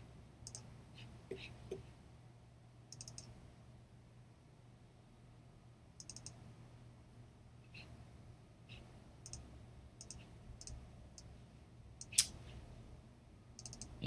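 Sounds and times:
computer mouse clicks: 0.4s - 0.7s, 2.9s - 3.3s, 6.0s - 6.4s, 9.2s - 11.3s, 13.6s - 14.0s.

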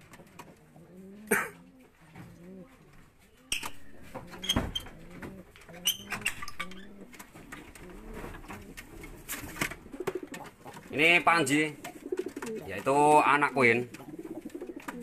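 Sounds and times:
pigeons cooing: 0.6s - 3.0s, 3.7s - 15.0s.

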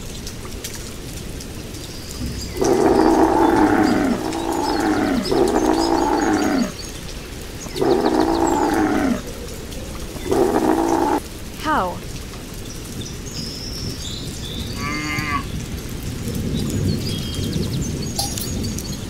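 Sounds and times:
hiss of water: 1.8s - 11.2s
bear growling: 2.5s - 6.8s, 7.7s - 9.3s, 10.2s - 11.2s.

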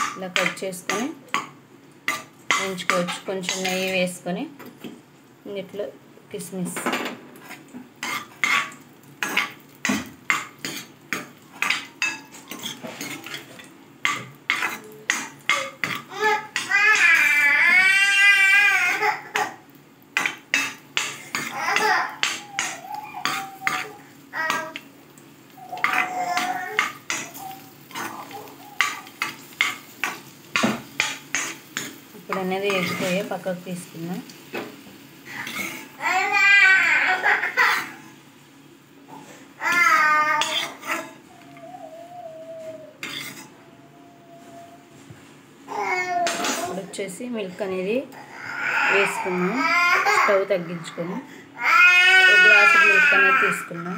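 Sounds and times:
faint frying sizzle: 0.0s - 53.9s
person speaking: 32.2s - 34.3s.

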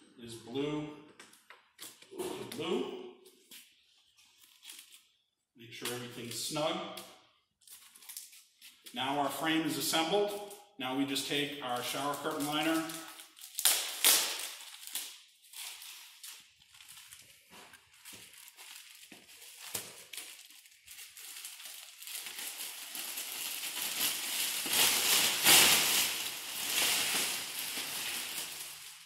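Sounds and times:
plastic sheet crinkling: 3.3s - 5.2s, 7.6s - 9.0s, 11.7s - 29.0s.

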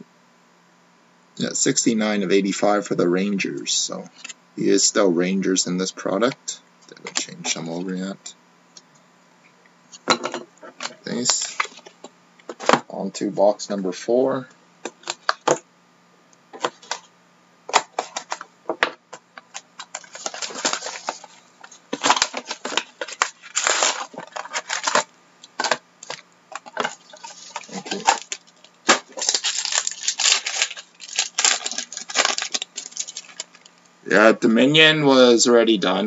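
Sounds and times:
cardboard and foil packs handled: 17.7s - 18.5s, 19.1s - 33.8s
wrapper crinkling: 19.4s - 33.8s.

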